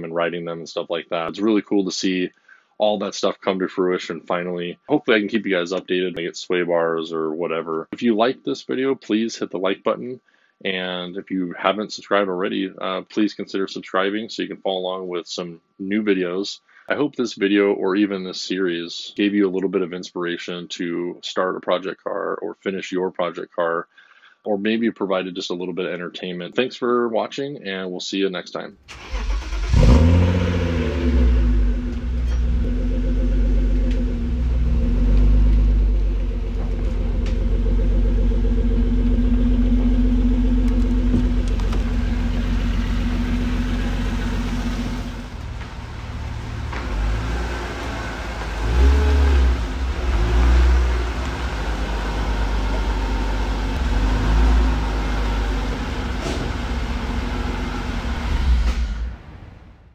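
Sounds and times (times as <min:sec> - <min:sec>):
car engine idling: 0:28.9 - 0:58.0
engine throttle blips: 0:28.9 - 0:58.9.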